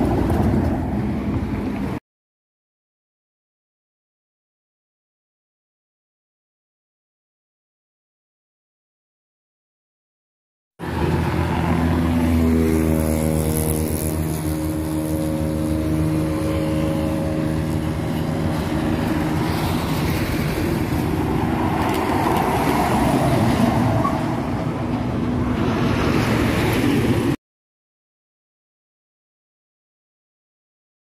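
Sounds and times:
tyre and road noise: 0:00.0 - 0:02.0, 0:10.8 - 0:27.4
diesel engine running: 0:10.8 - 0:26.1.

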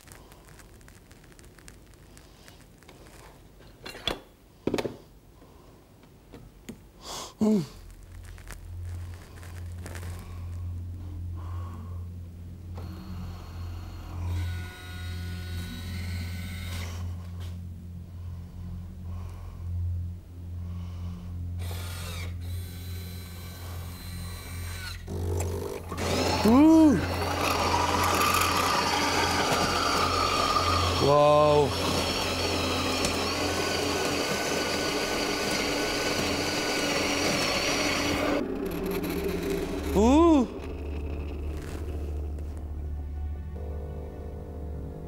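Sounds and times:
mechanical whirring: 0:21.6 - 0:42.5
coffee machine humming: 0:21.6 - 0:42.6
wavering squeak: 0:38.4 - 0:42.6.

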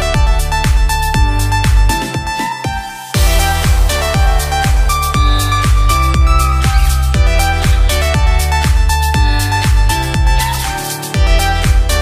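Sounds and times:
electronic dance music: 0:00.0 - 0:12.0
heavy kick drum thuds: 0:00.1 - 0:10.5
held synth note: 0:03.2 - 0:08.7.

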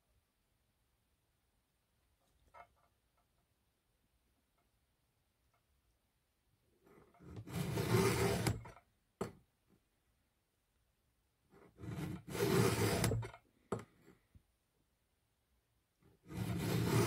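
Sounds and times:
file rasping across saw chain: 0:06.9 - 0:08.7, 0:11.6 - 0:13.3, 0:16.1 - 0:17.0.

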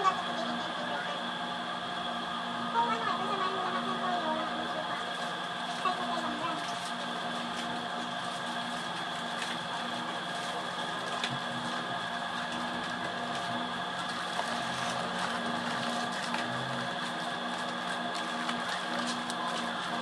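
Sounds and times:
small electric motor humming: 0:00.0 - 0:20.0
packaged goods rustling: 0:05.1 - 0:20.0.

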